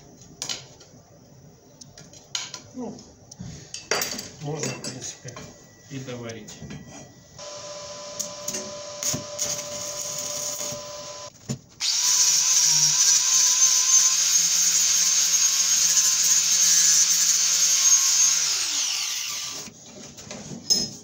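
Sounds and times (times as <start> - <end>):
angle grinder grinding metal: 7.4 - 19.7
arc welding hiss and crackle: 7.4 - 19.7.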